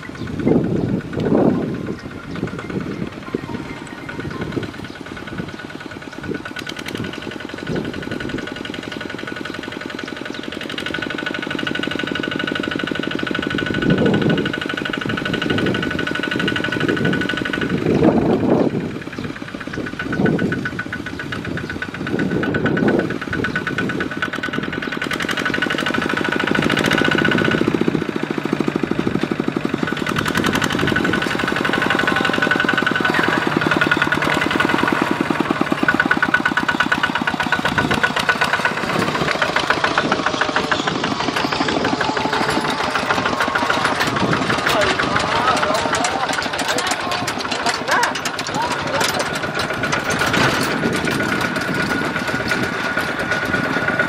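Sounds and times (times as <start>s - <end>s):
diesel tractor engine chugging: 0.0s - 54.0s.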